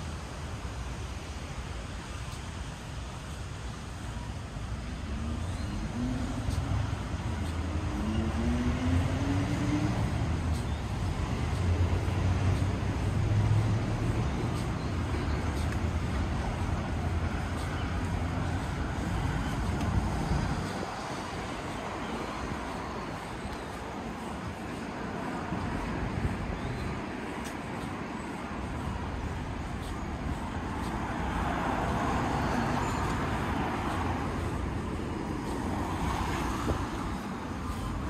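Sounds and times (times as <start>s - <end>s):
traffic noise: 0.0s - 38.0s
vehicle engine accelerating: 5.8s - 14.6s.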